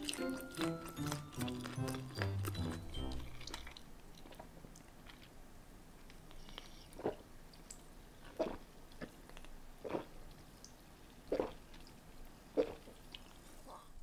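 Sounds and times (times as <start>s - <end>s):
person chewing food: 0.0s - 5.4s, 6.1s - 10.2s.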